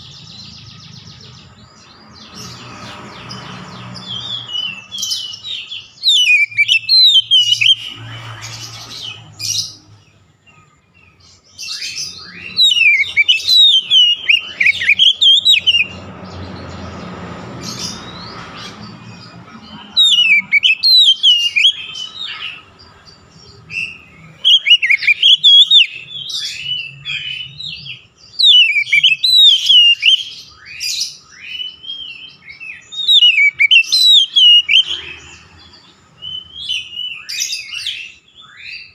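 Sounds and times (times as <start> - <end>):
bird singing whistled phrases: 4.1 - 8.1, 11.6 - 16.0, 20.0 - 22.6, 23.7 - 35.1.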